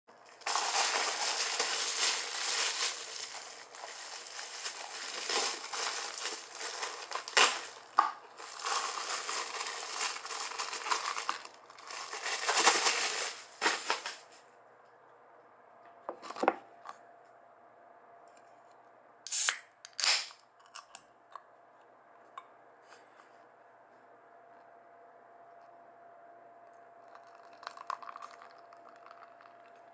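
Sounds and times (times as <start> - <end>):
plastic packaging crinkling: 0.1 - 14.3, 27.1 - 29.8
objects set down on table: 16.1 - 16.6.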